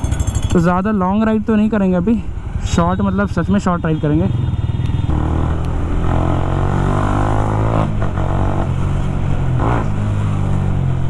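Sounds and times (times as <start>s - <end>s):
motorcycle engine accelerating: 4.7s - 11.0s.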